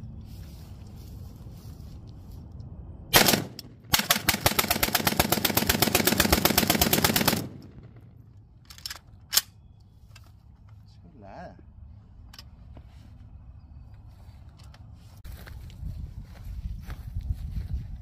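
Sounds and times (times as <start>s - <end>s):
rifle firing bursts: 3.1s - 8.1s.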